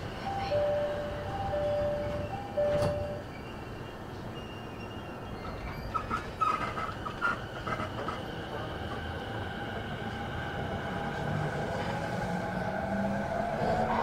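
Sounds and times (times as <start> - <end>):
two-tone train door chime: 0.0 - 5.3
train doors knocking shut: 1.2 - 3.2.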